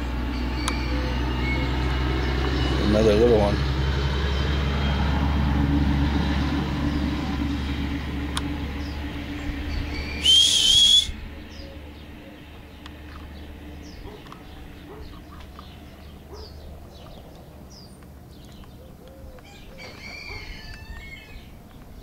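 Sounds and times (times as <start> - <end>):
person whistling: 10.1 - 11.2.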